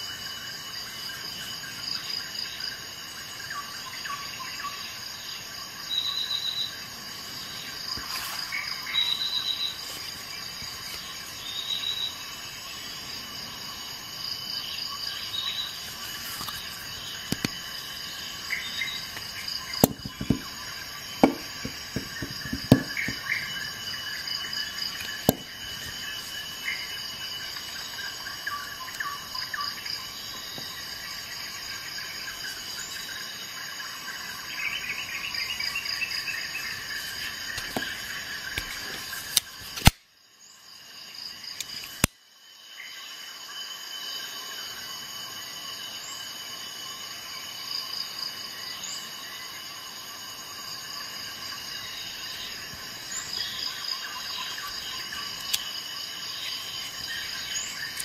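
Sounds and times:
insect-like trilled chirping: 7.4 - 38.8
multitool clicking open: 39.4 - 40.0.

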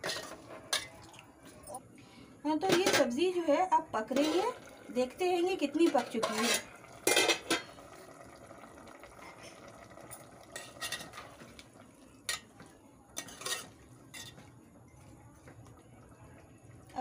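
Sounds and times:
curry simmering: 3.8 - 17.0
metal spoon scraping a pot: 4.1 - 4.6, 5.8 - 7.7, 13.2 - 14.4.

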